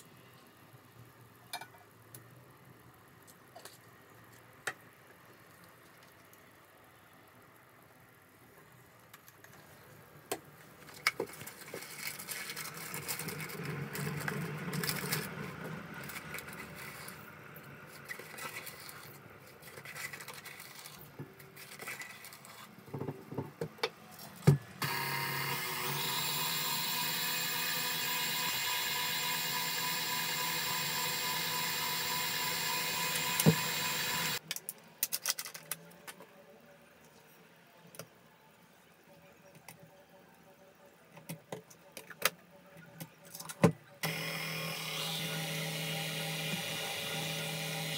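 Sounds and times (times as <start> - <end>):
stand mixer whisking: 24.8 - 34.4, 44.4 - 47.9.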